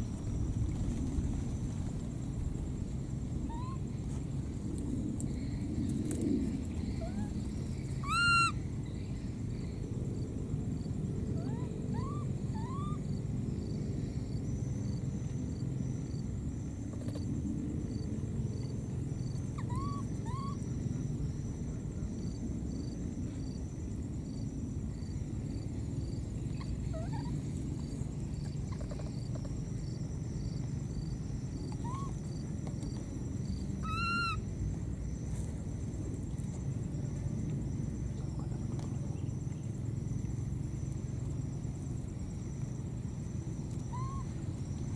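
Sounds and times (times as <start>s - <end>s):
low background rumble: 0.0s - 44.9s
baby monkey calling: 3.5s - 3.8s, 6.9s - 8.6s, 11.4s - 13.0s, 19.6s - 20.6s, 31.7s - 32.2s, 33.8s - 34.4s, 43.9s - 44.3s.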